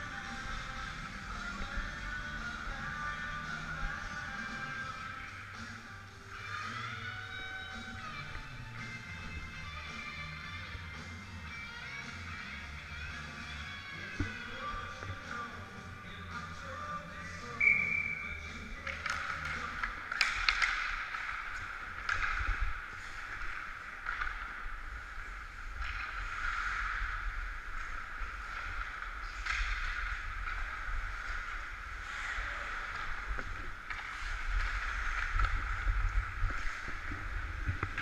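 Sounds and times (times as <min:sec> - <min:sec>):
skate blades scraping ice: 0:18.3 - 0:38.0.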